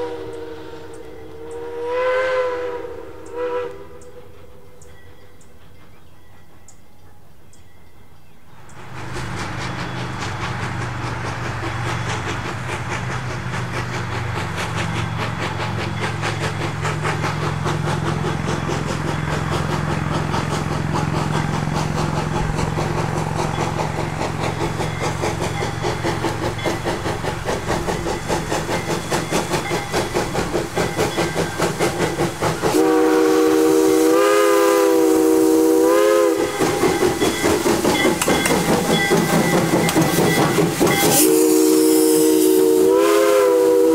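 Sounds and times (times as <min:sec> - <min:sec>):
steam whistle blast: 0:00.0 - 0:04.5, 0:32.7 - 0:37.1, 0:40.8 - 0:43.9
steam locomotive chuffing: 0:00.0 - 0:07.2, 0:08.6 - 0:43.9.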